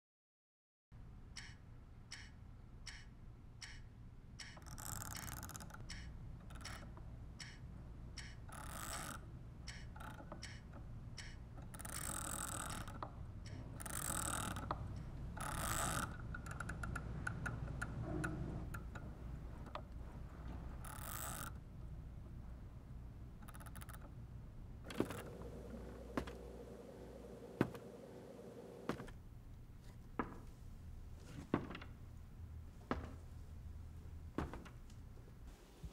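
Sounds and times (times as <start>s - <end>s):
mechanical ticking: 1.4s - 19.1s
low hum: 24.8s - 29.1s.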